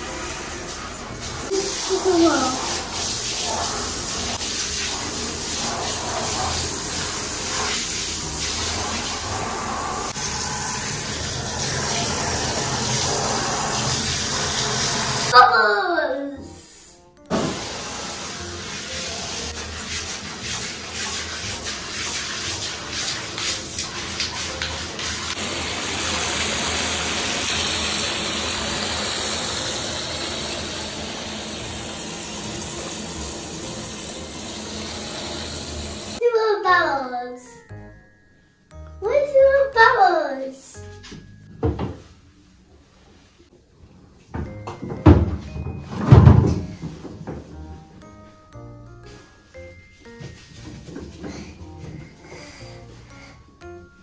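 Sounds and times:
shower water splashing on plastic: 0.0 - 15.4, 17.3 - 36.2.

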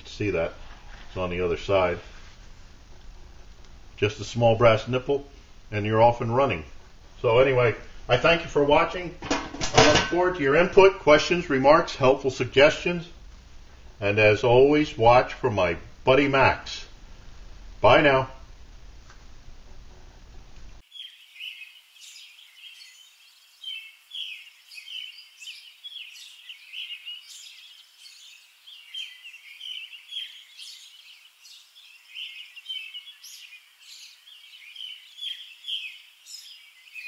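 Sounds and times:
faint steady hiss: 0.0 - 37.0
songbirds chirping and singing: 20.8 - 37.0.

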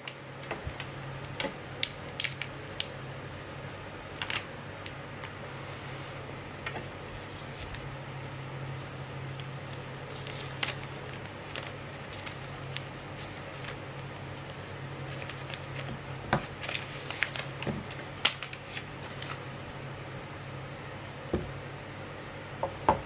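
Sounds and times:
plastic wrap crinkling: 7.2 - 19.5.

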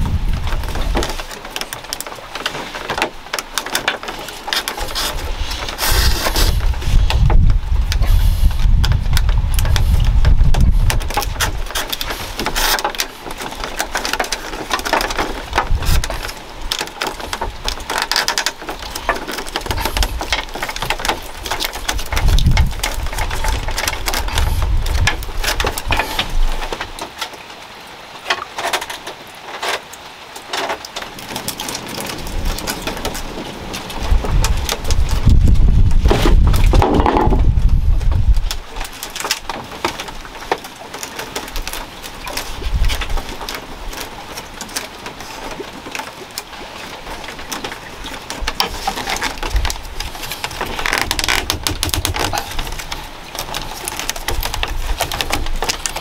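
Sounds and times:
bamboo strips crackling and rustling: 0.0 - 56.0
low thumps: 35.2 - 38.3.

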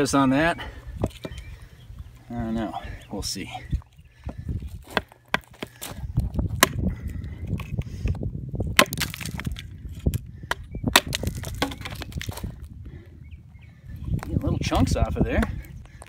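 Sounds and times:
hatchet chopping wood: 4.8 - 6.9, 8.7 - 9.6, 10.5 - 12.3.

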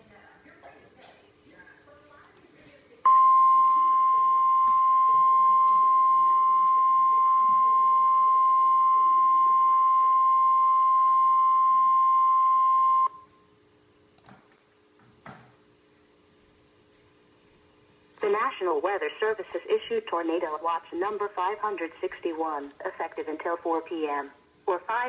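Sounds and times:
steady high alarm tone: 3.1 - 13.4.

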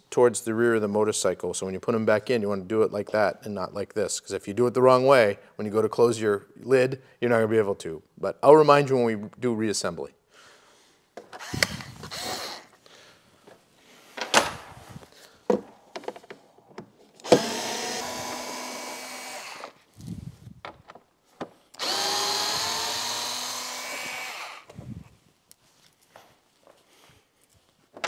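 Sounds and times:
cordless screwdriver whine: 11.4 - 12.8, 17.2 - 20.3, 21.8 - 25.0.

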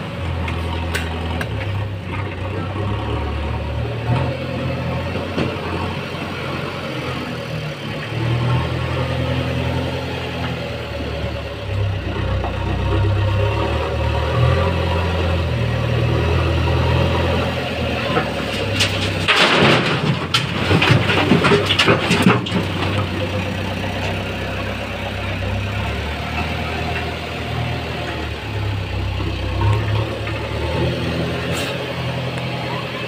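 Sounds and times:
diesel engines running: 0.0 - 33.0
soil and stones hitting metal bed: 18.1 - 23.4.

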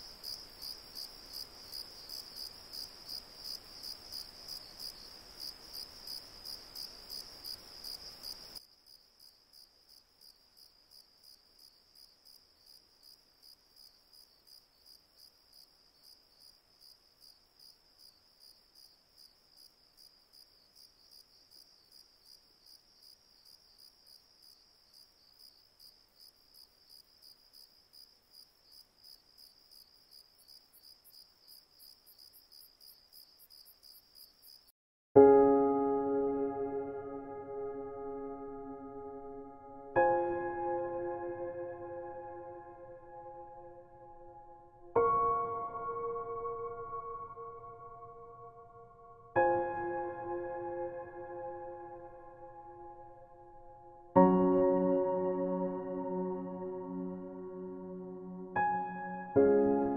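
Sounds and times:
cricket chirping: 0.0 - 34.7.

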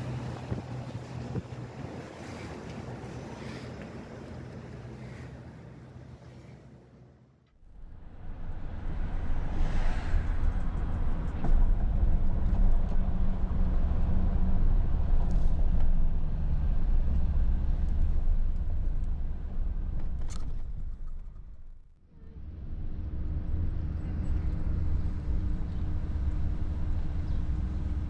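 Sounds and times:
road and engine rumble inside car: 10.3 - 20.9, 22.2 - 28.0.

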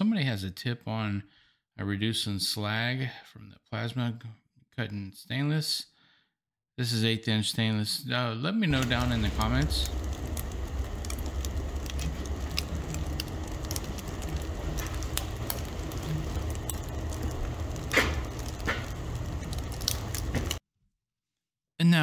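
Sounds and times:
charcoal fire crackling: 8.7 - 20.6.

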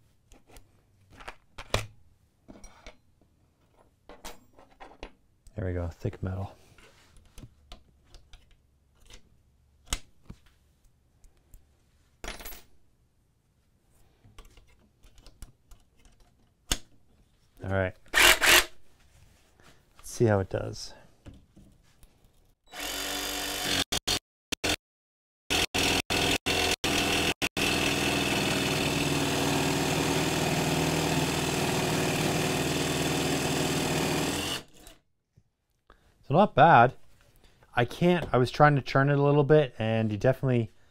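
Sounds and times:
jigsaw cutting steel plate: 18.1 - 18.7, 22.7 - 24.8, 25.5 - 35.0.

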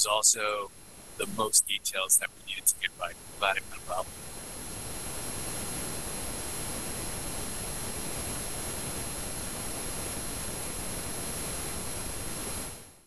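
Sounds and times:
faint high-pitched tones: 0.0 - 4.0
steady static hiss: 0.0 - 13.0.

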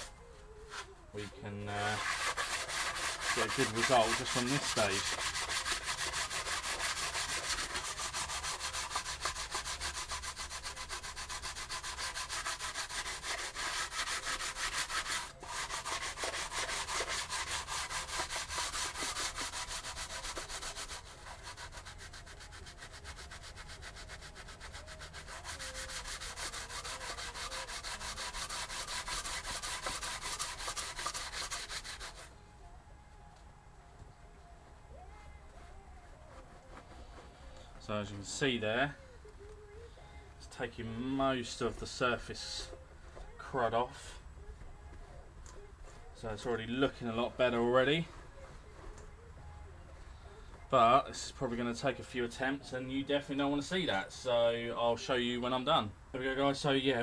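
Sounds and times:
sandpaper rubbing on metal: 0.7 - 32.3, 40.9 - 42.7.

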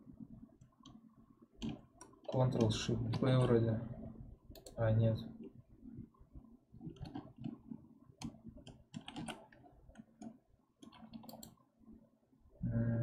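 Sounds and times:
mouse and keyboard clicks: 6.9 - 7.6, 8.2 - 11.6
person humming: 12.6 - 13.0.

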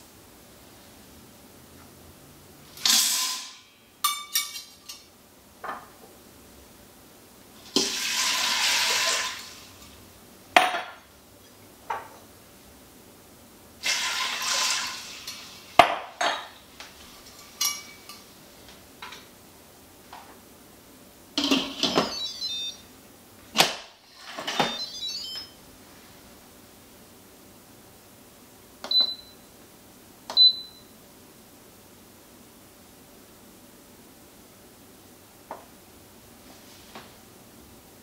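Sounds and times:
water pouring into pot: 7.6 - 9.7, 13.8 - 15.7
short high beeps: 22.0 - 22.8, 24.6 - 25.6.

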